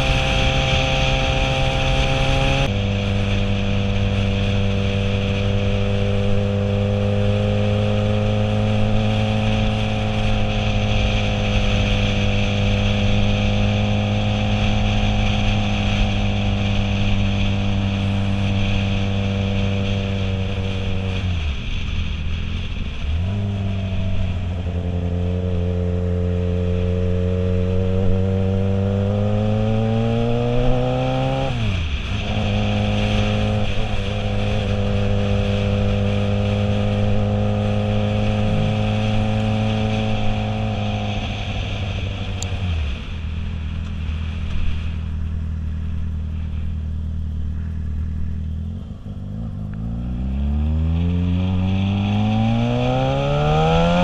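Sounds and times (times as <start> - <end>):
motorcycle engine running: 0.0 - 54.0
wind rushing past microphone: 0.0 - 54.0.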